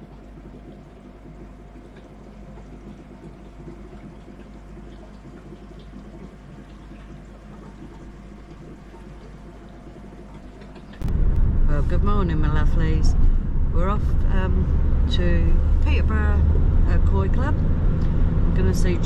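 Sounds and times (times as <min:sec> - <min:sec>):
water running and trickling: 0:00.0 - 0:11.2
steady low hum: 0:00.0 - 0:19.0.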